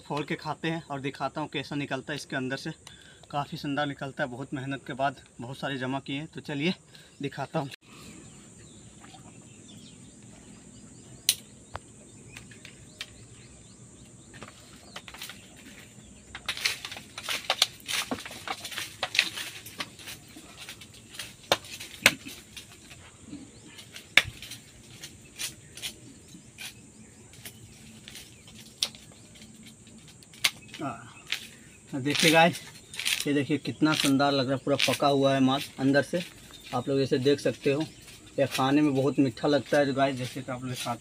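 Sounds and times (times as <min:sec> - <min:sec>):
high insect drone: 0:00.0 - 0:41.0
fruit shell knocks and cracks: 0:21.4 - 0:22.6, 0:24.0 - 0:24.6.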